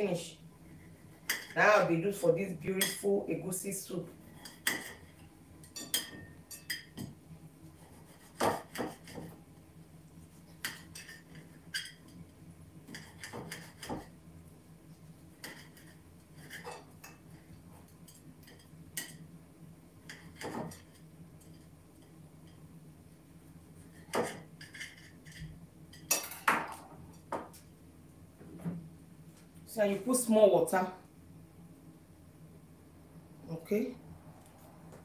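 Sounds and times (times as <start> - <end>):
low steady hum: 0.0 - 35.0
knife clinking on ceramic plate: 5.7 - 7.0.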